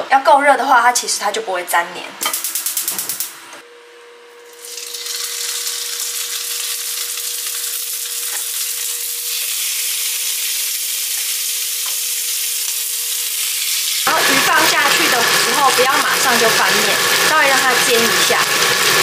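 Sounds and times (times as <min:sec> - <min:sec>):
fish sizzling in hot oil: 0:04.6 - 0:19.0.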